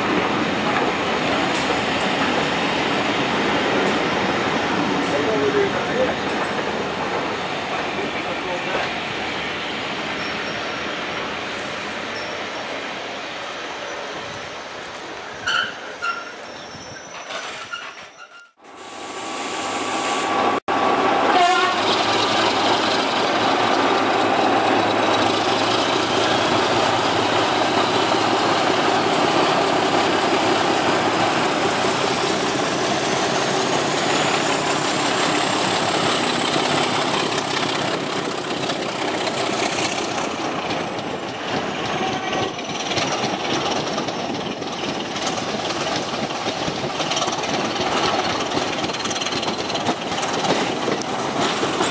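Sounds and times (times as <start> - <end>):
train wheels running on rails: 0.0 - 18.3, 19.1 - 51.9
diesel locomotive engine working hard: 18.7 - 51.9.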